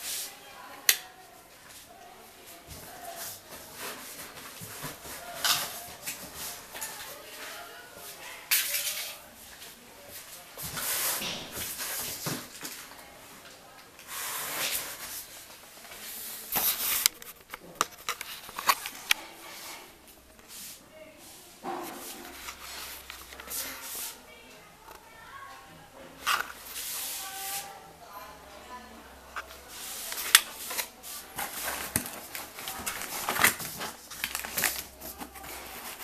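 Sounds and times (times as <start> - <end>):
cardboard scraping and tearing: 30.6 - 36.0.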